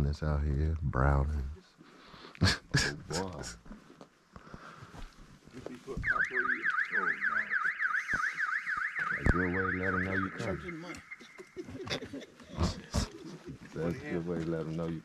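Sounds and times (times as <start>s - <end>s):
electronic siren yelping: 6.0s - 11.6s.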